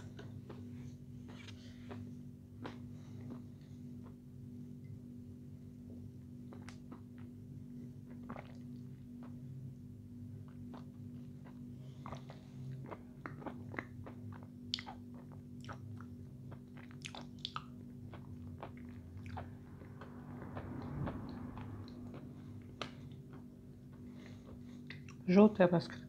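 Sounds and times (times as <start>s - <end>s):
faint low hum: 0.0s - 26.0s
woman chewing crunchy food: 8.0s - 9.6s, 10.4s - 25.3s.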